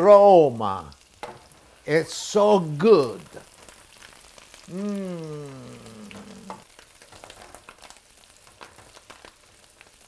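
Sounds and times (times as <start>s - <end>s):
food frying in butter: 0.0s - 10.0s
man's drawn-out voice: 4.7s - 6.6s.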